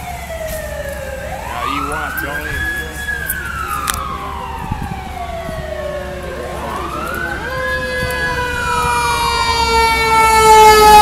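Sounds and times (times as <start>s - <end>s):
fire engine siren wailing: 0.0s - 11.0s
second steady siren tone: 0.0s - 11.0s.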